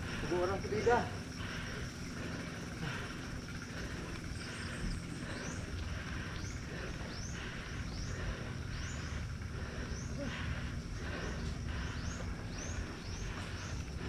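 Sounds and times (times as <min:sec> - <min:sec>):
person panting heavily: 0:00.0 - 0:14.0.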